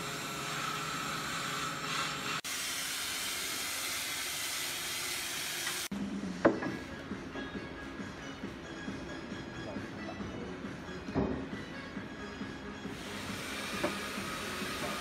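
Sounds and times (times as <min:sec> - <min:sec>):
workshop hiss: 0:00.0 - 0:05.9, 0:12.9 - 0:15.0
wooden knock: 0:06.4 - 0:06.8.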